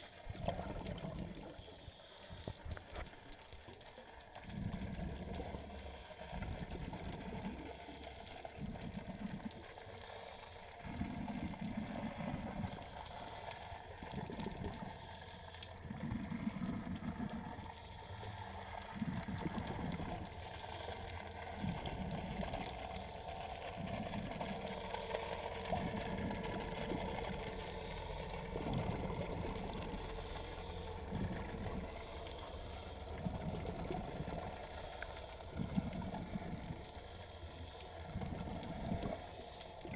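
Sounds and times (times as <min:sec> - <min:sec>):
underwater surging gurgles: 0:00.0 - 0:39.9.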